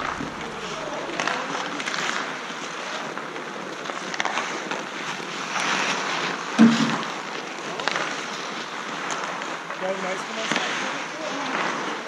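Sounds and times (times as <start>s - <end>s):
loud thump: 0.0s - 1.3s, 6.6s - 7.1s
skate blades scraping ice: 0.0s - 12.0s.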